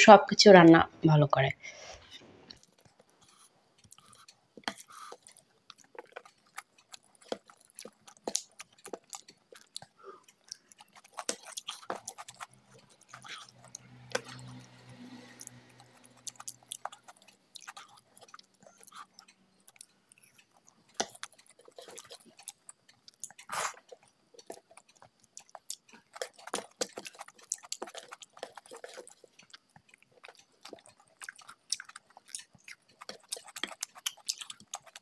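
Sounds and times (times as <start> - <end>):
chewing and wet mouth clicks: 2.5 - 35.0
fingers squishing rice: 20.4 - 35.0.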